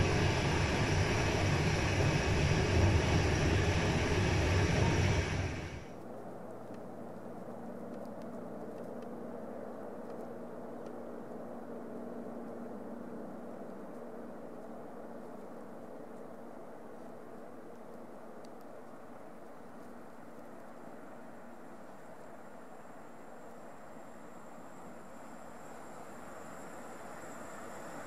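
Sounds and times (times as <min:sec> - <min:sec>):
train rumbling over rails: 0:00.0 - 0:05.9
faint outdoor hum: 0:00.0 - 0:28.0.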